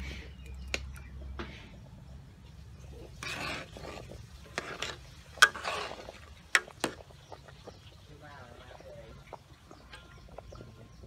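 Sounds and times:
metal ladle scraping a pot: 2.7 - 7.9.

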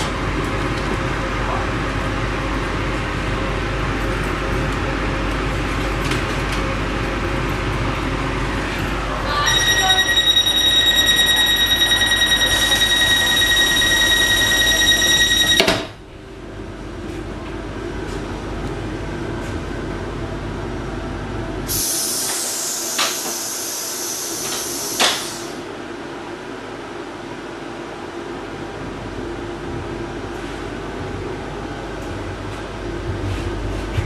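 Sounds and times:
door-closing warning tone: 9.3 - 16.0
hiss: 21.7 - 25.6.

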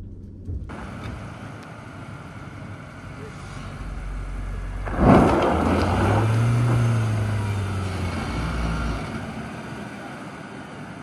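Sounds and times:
low engine note: 0.0 - 11.0
sudden burst of noise: 0.7 - 11.0.

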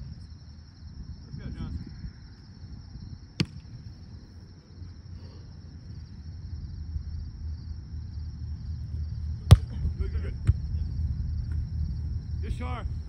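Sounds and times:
wind rumble on microphone: 0.0 - 4.6, 5.8 - 13.0
insects chirring: 0.0 - 13.0.

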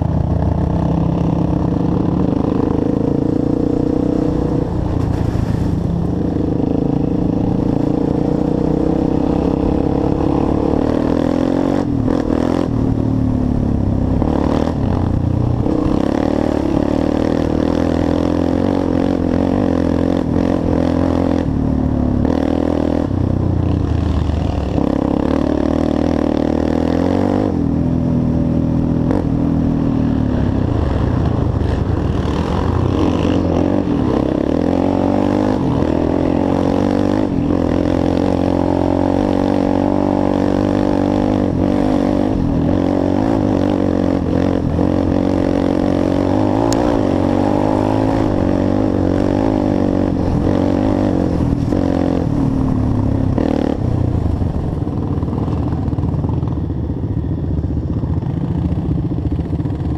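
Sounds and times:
quad engine running: 0.0 - 59.9
clatter from rough ground: 4.9 - 6.2.

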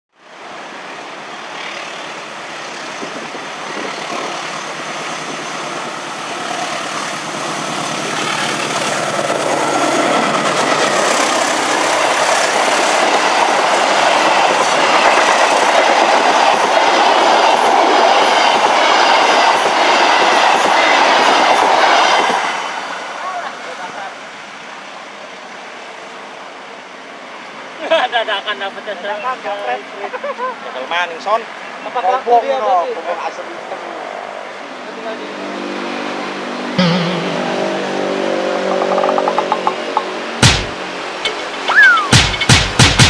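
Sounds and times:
train passing at speed: 0.2 - 42.9
falling tone: 36.7 - 42.3
wheels clattering over rail joints: 38.6 - 40.3.

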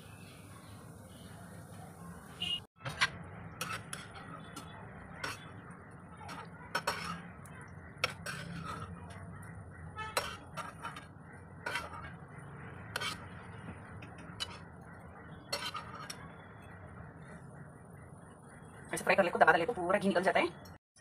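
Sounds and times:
metal spoon clinking on pan: 6.3 - 7.2.

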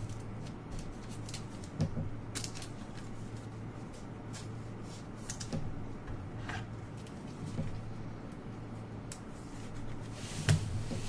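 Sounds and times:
trading cards clicking and rustling: 0.0 - 4.6
steady low hum: 0.0 - 11.0.

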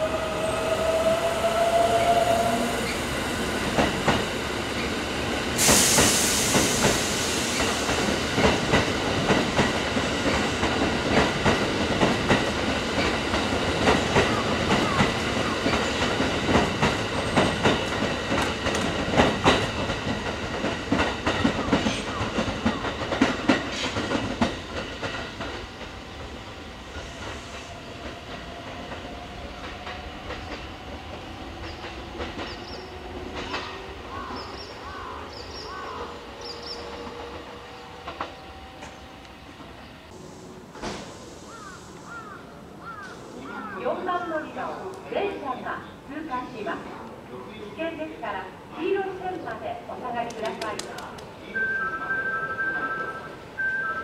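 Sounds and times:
sudden hiss: 5.6 - 8.1, 40.1 - 43.8
train wheels clacking over rail joints: 5.6 - 25.9.

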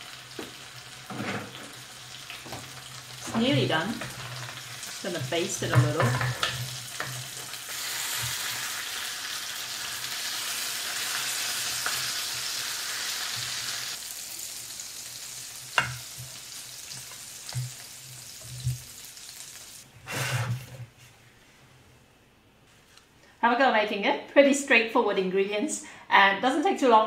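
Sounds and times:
fish sizzling in a grill pan: 1.7 - 19.8
spatula scraping grill plate: 3.4 - 8.9, 20.0 - 20.9.

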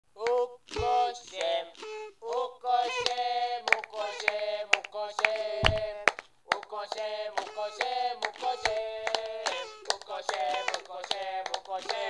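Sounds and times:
high-pitched voice singing: 0.2 - 4.6, 7.4 - 11.2.

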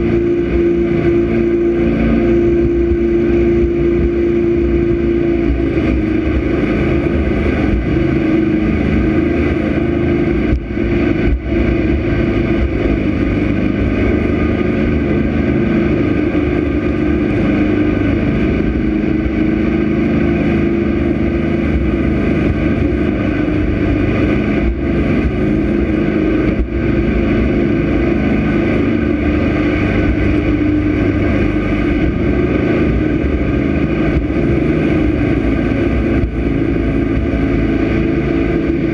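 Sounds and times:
boat engine drone: 0.0 - 38.9
rushing water: 0.0 - 38.9.

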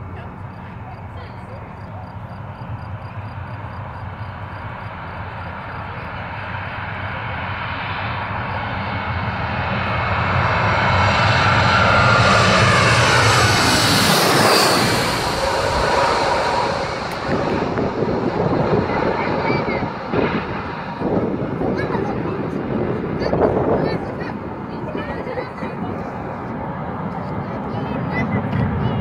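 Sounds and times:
jet airliner passing overhead: 0.0 - 29.0.

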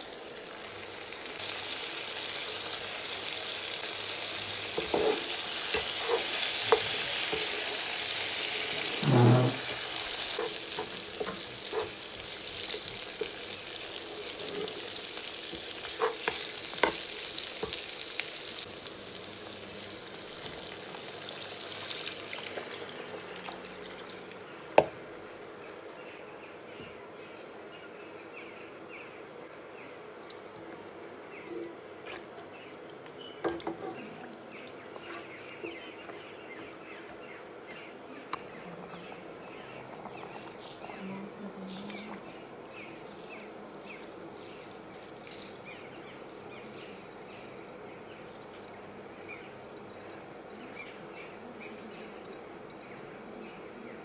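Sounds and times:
stock boiling and bubbling: 0.0 - 25.1, 38.3 - 48.9.

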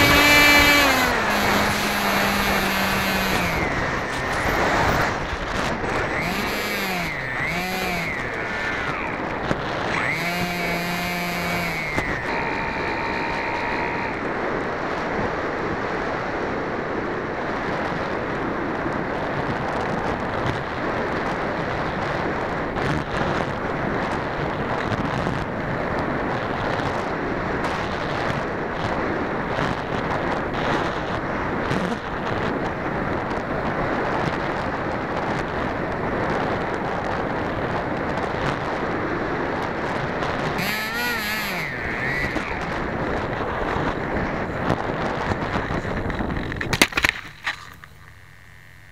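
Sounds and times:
electric motor whine: 0.0 - 14.8, 39.8 - 48.9
wind rushing over microphone: 0.0 - 48.9.

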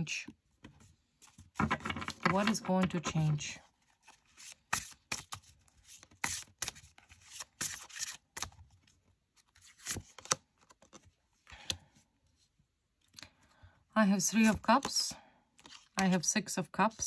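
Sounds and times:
cards being shuffled: 3.9 - 8.6, 9.4 - 11.1, 15.6 - 16.2.

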